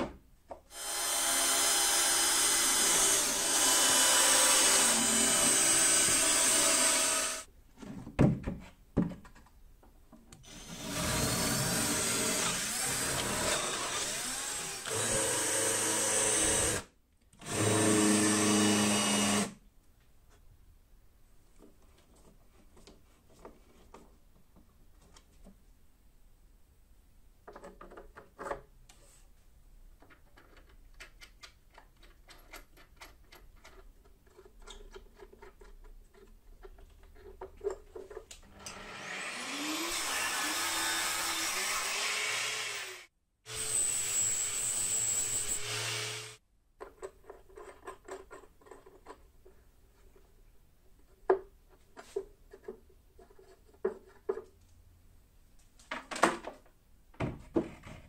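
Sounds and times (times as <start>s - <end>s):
small electric power tool running: 0.7s - 7.4s, 10.5s - 16.8s, 38.6s - 46.4s.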